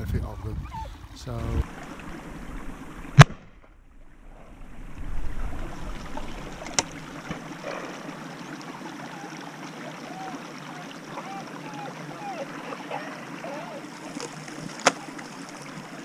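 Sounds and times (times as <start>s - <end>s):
wind rumbling on microphone: 0.0s - 3.2s, 3.8s - 7.8s.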